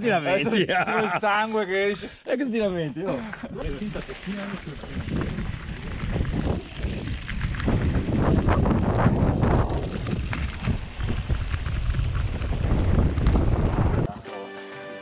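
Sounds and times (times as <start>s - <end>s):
bike tyre noise: 3.4s - 14.1s
bike knocking and rattling: 3.6s - 14.1s
wind rushing over microphone: 4.7s - 14.1s.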